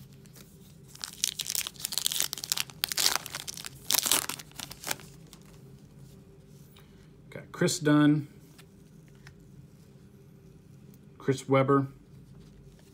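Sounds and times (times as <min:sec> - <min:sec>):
foil wrapper tearing and crinkling: 0:00.9 - 0:05.5.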